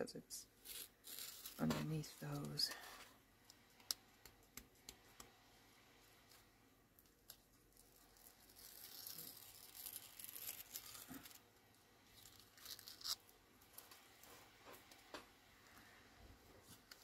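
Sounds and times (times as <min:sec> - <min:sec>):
paper rustling and peeling: 0:00.6 - 0:03.1, 0:06.2 - 0:11.5, 0:12.1 - 0:14.9
sharp paper crackles: 0:07.8 - 0:11.4.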